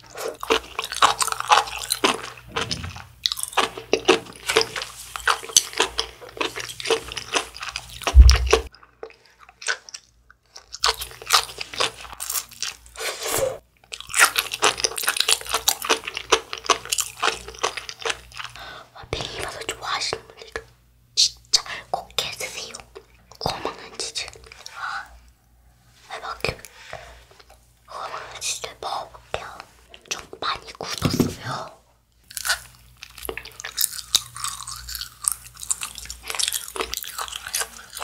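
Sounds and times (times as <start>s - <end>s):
crunchy chewing: 0.0s - 13.0s, 13.9s - 18.7s, 32.2s - 38.0s
low thump: 2.5s - 3.1s, 8.1s - 8.7s.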